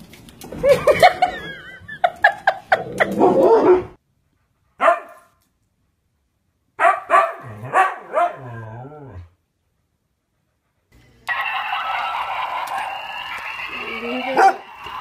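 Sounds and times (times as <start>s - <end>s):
dogs barking: 4.8s - 5.2s, 6.8s - 8.6s, 14.2s - 14.7s.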